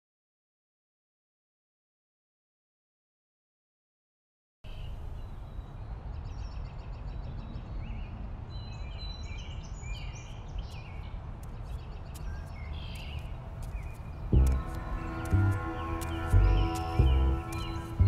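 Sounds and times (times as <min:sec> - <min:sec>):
small birds chirping: 0:04.7 - 0:18.0
steady low rumble: 0:11.0 - 0:18.0
music: 0:14.3 - 0:18.0.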